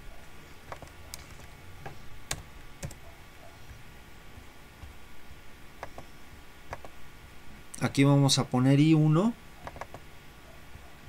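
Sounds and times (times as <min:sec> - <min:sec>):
faint low hum: 0:00.0 - 0:11.0
computer keyboard key clicks: 0:02.3 - 0:03.0, 0:09.6 - 0:10.0.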